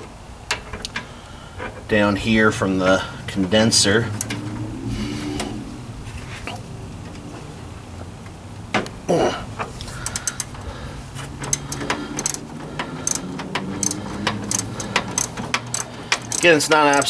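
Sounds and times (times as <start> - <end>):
metal scraping: 3.3 - 7.9
ratchet wrench clicking: 10.0 - 10.6, 11.3 - 17.0.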